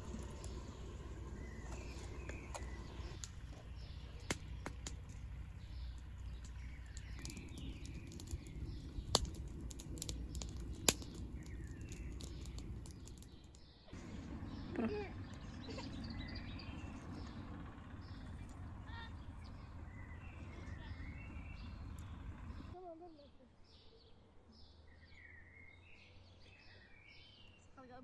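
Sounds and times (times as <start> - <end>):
low outdoor rumble: 0.0 - 23.7
small birds chirping: 0.0 - 28.0
sharp clicks: 4.2 - 13.6.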